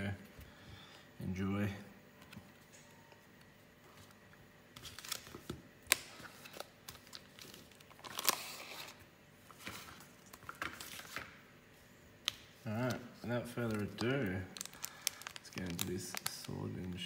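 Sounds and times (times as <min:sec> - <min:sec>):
foil packs crinkling: 0:04.7 - 0:11.3, 0:12.7 - 0:17.0.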